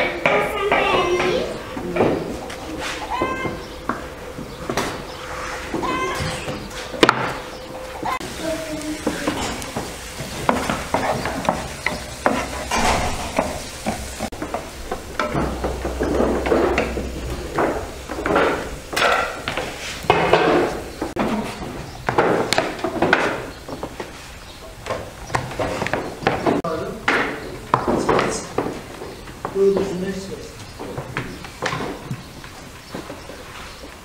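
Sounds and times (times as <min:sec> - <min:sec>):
vegetables sizzling in a pan: 0:08.0 - 0:21.2
wooden spatula scraping a pan: 0:08.2 - 0:21.6.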